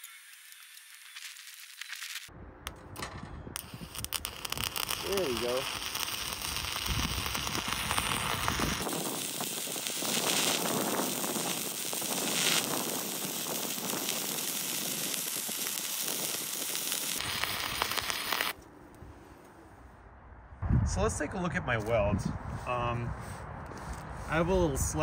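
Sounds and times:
welding arc crackling: 0:00.0 - 0:18.6.

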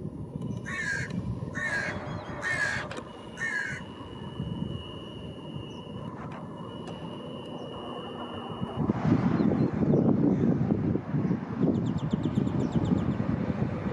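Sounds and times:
crow cawing: 0:00.6 - 0:04.0.

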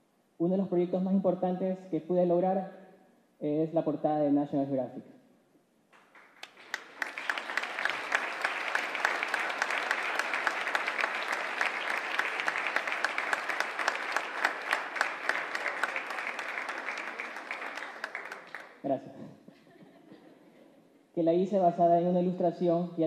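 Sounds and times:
audience applauding: 0:06.0 - 0:18.8.

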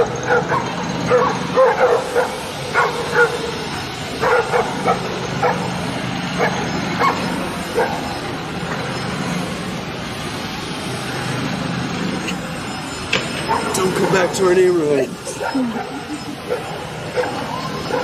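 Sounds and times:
dogs barking: 0:00.0 - 0:08.2, 0:13.4 - 0:13.8, 0:15.2 - 0:18.0
street traffic rumble: 0:00.0 - 0:18.0.

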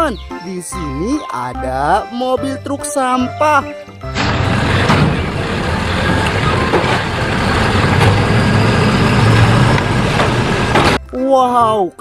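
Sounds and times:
garbage truck engine running: 0:04.0 - 0:11.0
cart knocking: 0:04.1 - 0:11.0.

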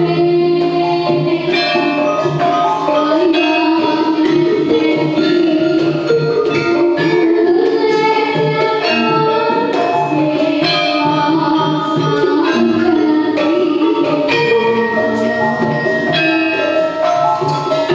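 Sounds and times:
child singing into microphone: 0:00.0 - 0:17.9
gamelan ensemble playing: 0:00.0 - 0:17.9.

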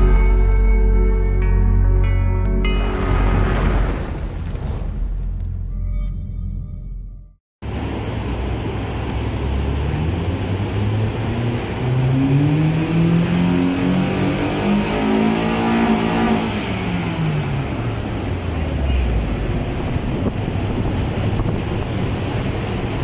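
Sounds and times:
car engine revving: 0:07.7 - 0:23.0.

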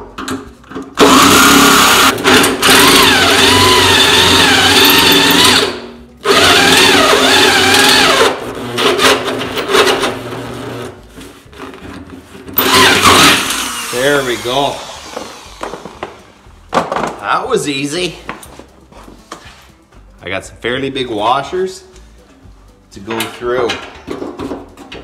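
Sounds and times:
electric drill boring through steel: 0:01.0 - 0:08.4, 0:12.6 - 0:16.0.

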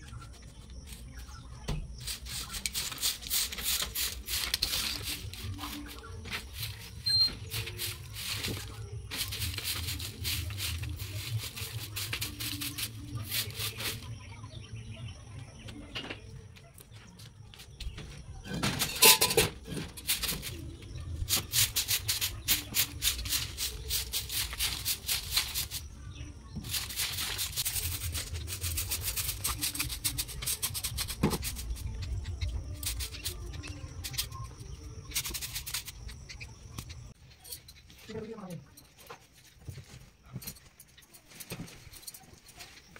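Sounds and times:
broom sweeping cement floor: 0:00.1 - 0:14.5, 0:18.7 - 0:37.2.

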